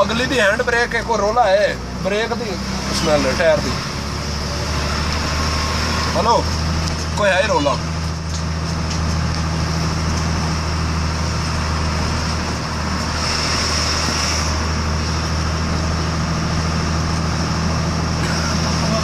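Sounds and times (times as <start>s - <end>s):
road noise hiss: 0.0s - 19.0s
vehicle engine drone inside cabin: 0.0s - 19.0s.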